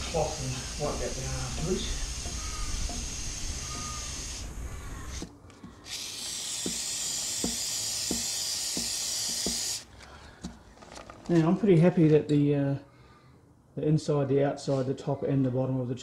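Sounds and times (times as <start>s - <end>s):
aerosol spray hissing: 0.0s - 5.3s, 5.9s - 9.9s.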